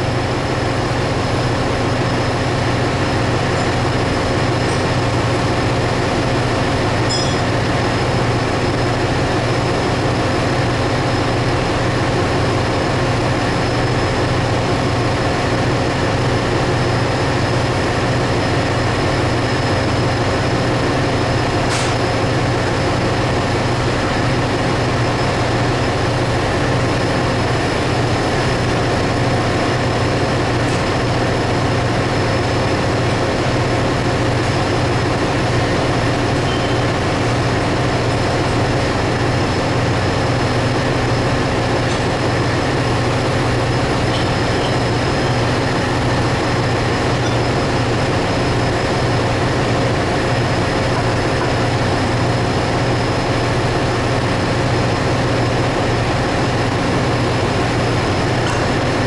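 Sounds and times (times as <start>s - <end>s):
faint machine whines: 0.0s - 9.4s, 22.4s - 53.4s
machinery low hum: 0.0s - 59.0s.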